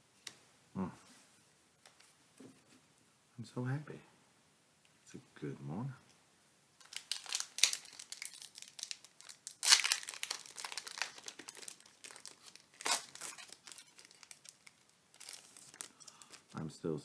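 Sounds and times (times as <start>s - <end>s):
foil wrapper crinkling and tearing: 6.8s - 16.6s.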